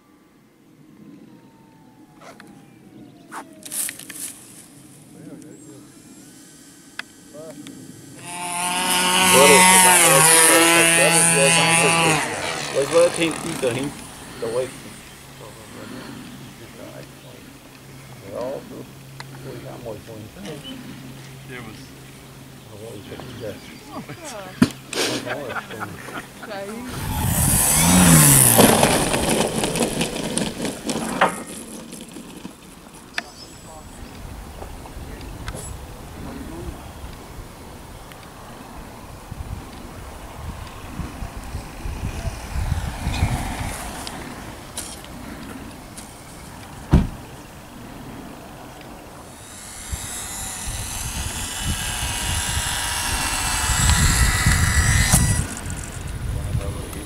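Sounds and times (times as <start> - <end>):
model plane engine running: 3.6 - 23.6, 26.0 - 34.9, 40.7 - 48.2, 48.8 - 57.0.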